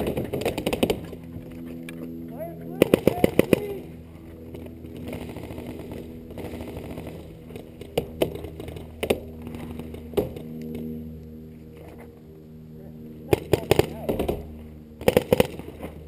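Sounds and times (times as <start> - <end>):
steady low hum: 0.0 - 16.0
paintball marker shots: 13.3 - 15.9.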